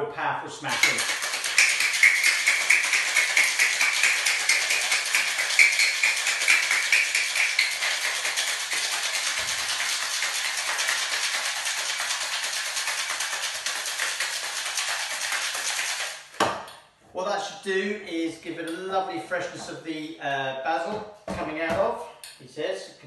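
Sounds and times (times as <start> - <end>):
ice rattling in cocktail shaker: 0.7 - 16.3.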